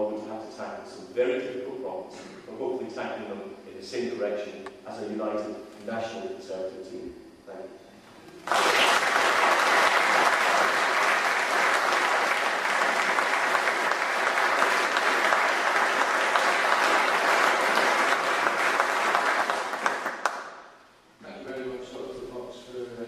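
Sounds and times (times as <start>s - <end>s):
audience applauding: 8.4s - 20.6s.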